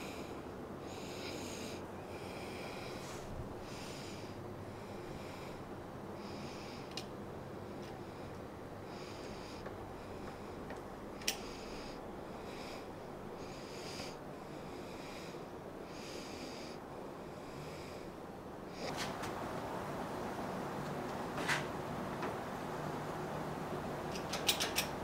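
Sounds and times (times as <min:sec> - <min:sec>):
person breathing: 0:00.0 - 0:19.0
lathe handwheel clicks: 0:24.1 - 0:25.0.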